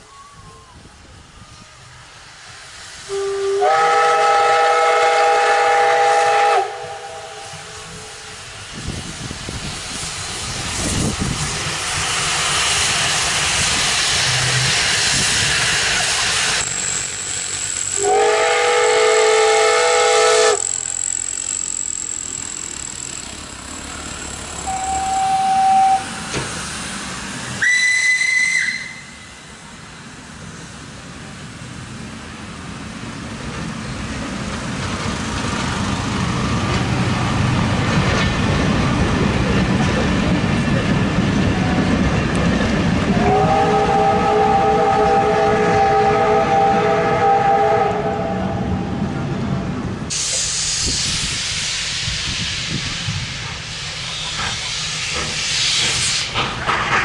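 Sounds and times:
steam hissing: 0:00.0 - 0:49.1, 0:49.9 - 0:57.0
steam locomotive whistle: 0:03.0 - 0:08.4, 0:16.6 - 0:21.6, 0:24.3 - 0:26.3, 0:27.6 - 0:29.5, 0:43.1 - 0:48.9
high rising whistle: 0:14.3 - 0:26.4, 0:27.6 - 0:29.5.

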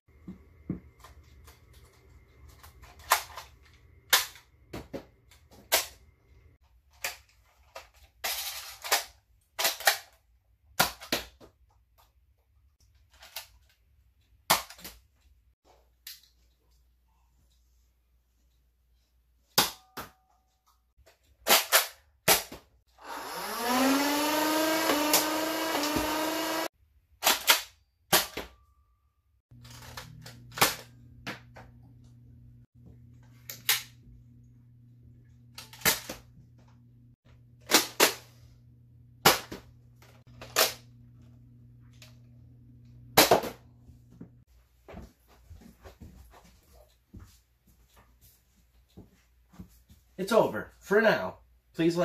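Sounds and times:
motor-like whine: 0:23.0 - 0:26.7
low steady hum: 0:29.6 - 0:44.4.

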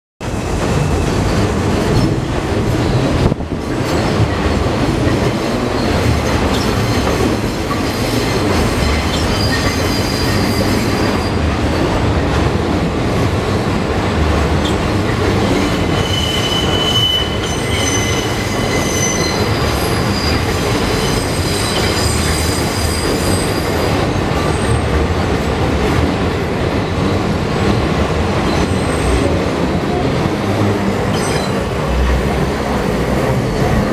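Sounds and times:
train wheels rumbling on rails: 0:00.2 - 0:33.9
train wheels squealing: 0:05.7 - 0:11.4, 0:15.5 - 0:24.9, 0:31.1 - 0:31.7.

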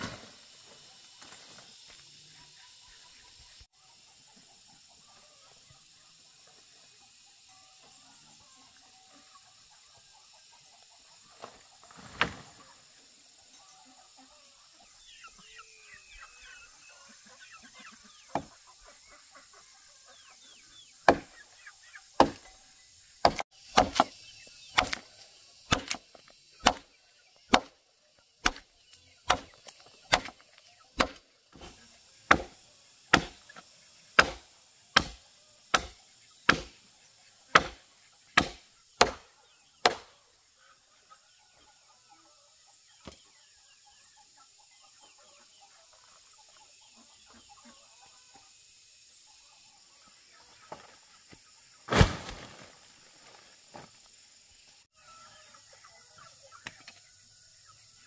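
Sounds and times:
machete chopping tree trunk: 0:18.3 - 0:18.5, 0:21.0 - 0:21.4, 0:22.2 - 0:22.5, 0:23.2 - 0:25.1, 0:25.7 - 0:26.9, 0:27.5 - 0:27.8, 0:28.4 - 0:30.4, 0:31.0 - 0:33.6, 0:34.2 - 0:36.8, 0:37.5 - 0:37.8, 0:38.4 - 0:40.1, 0:51.9 - 0:52.5.

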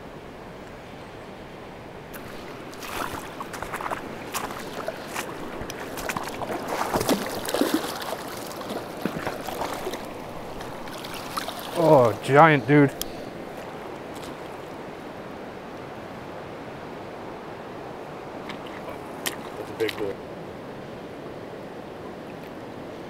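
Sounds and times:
river rushing: 0:01.7 - 0:23.0
fish splashing in shallow water: 0:02.1 - 0:12.3, 0:13.0 - 0:15.3, 0:18.4 - 0:20.2.

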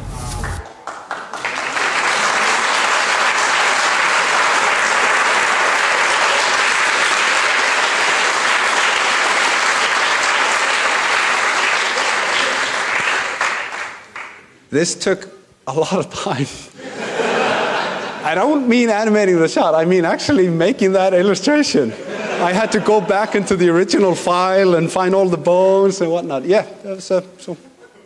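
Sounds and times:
audience applauding: 0:00.0 - 0:14.5.

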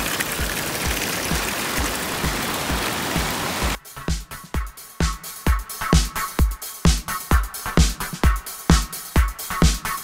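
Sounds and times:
music with kick-drum beat: 0:03.7 - 0:10.0.

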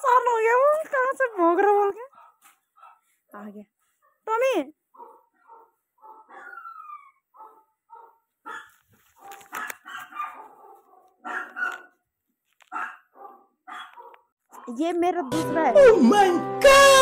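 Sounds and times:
dog barking and whining: 0:05.0 - 0:12.0, 0:12.7 - 0:15.4.

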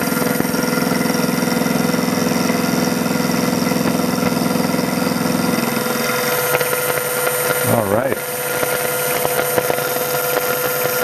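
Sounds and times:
milling machine hum: 0:00.0 - 0:11.0.

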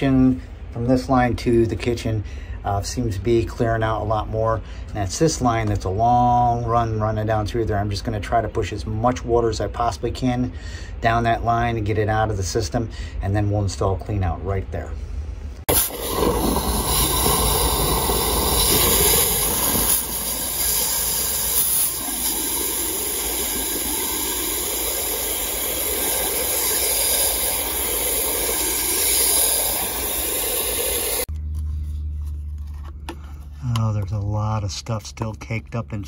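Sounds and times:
hose water spraying into pipe: 0:15.7 - 0:31.3.

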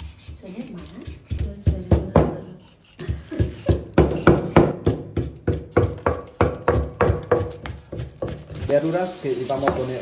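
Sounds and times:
food being pounded: 0:01.1 - 0:08.7.

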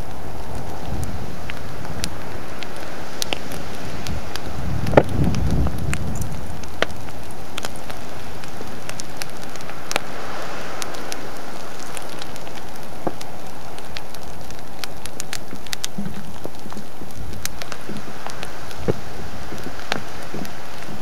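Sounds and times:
low rumble from a blast: 0:00.0 - 0:10.0
lava rushing roar: 0:00.0 - 0:21.0
sharp cracks and pops: 0:00.0 - 0:21.0.

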